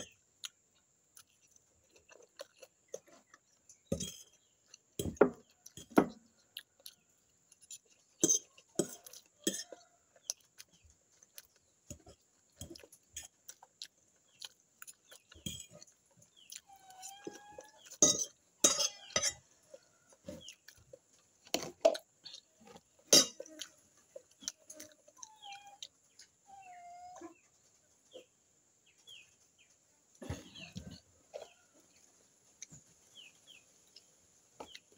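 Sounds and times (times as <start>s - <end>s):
chickens clucking: 8.2s - 34.9s
fork clinking on glass bowl: 18.0s - 19.4s, 23.1s - 23.4s.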